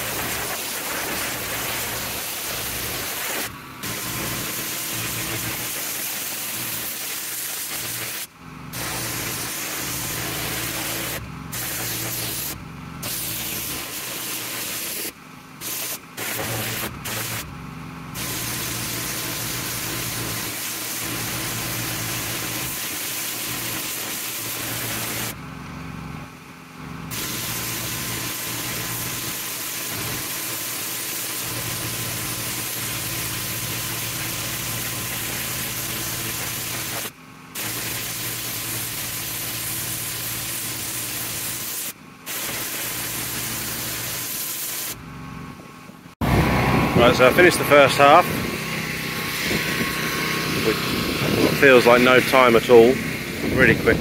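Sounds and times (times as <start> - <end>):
pressure washer spray hissing: 0.0 - 17.5, 18.2 - 25.4, 27.1 - 45.0, 46.2 - 54.0
engine humming: 7.8 - 14.0, 45.0 - 54.0.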